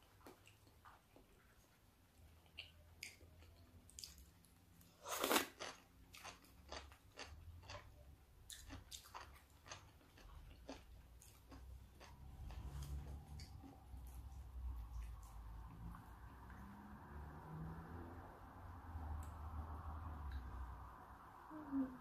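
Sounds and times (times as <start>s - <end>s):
person chewing: 2.2s - 16.2s.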